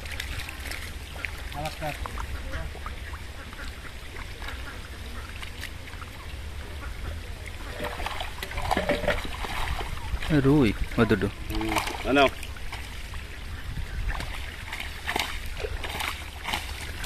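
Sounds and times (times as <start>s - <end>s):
fish splashing and thrashing: 0.0s - 17.0s.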